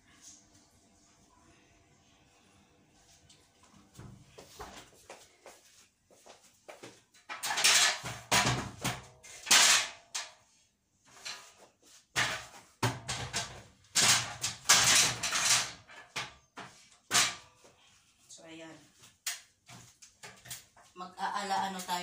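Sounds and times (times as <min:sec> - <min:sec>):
metal ladder rattling and scraping: 0:07.2 - 0:17.6.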